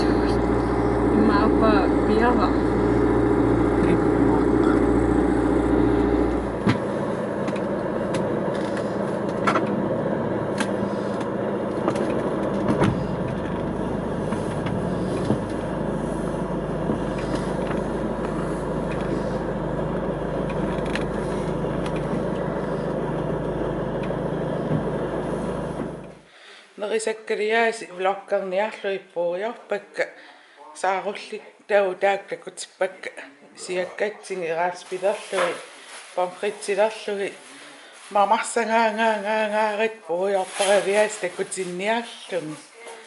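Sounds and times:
boat engine running: 0.0 - 26.3.

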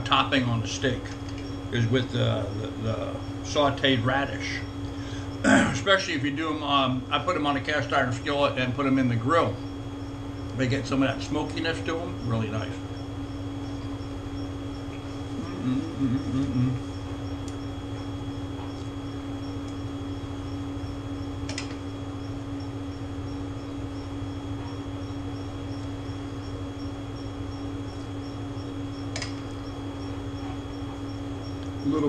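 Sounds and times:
appliance fan humming: 0.0 - 32.0
faint regular ticking: 9.6 - 15.3, 16.9 - 32.0
short clicks: 29.1 - 29.4.

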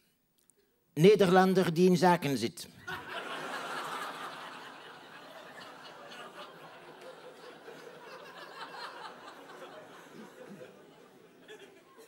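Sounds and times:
audience laughing: 2.8 - 12.0.

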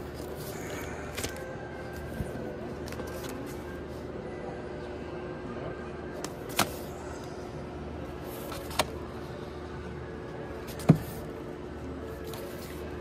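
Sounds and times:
faint steady hum: 0.0 - 13.0
record sleeves flipped by hand: 6.2 - 6.8.

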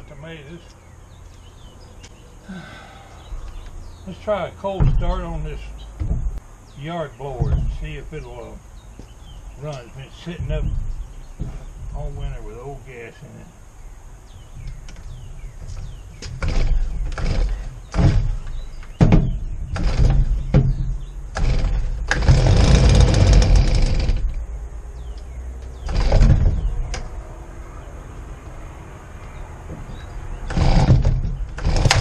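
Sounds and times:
recoil cord pulls: 21.3 - 24.4, 30.5 - 32.0
two-stroke blower engine running: 21.4 - 24.2.

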